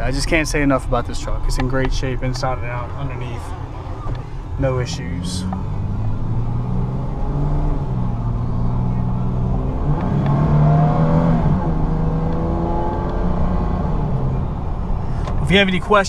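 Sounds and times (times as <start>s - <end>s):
car engine revving hard: 5.7s - 14.4s.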